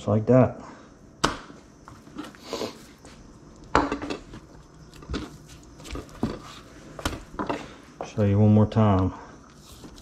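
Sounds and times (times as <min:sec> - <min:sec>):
soft handling noise: 0:04.0 - 0:10.0.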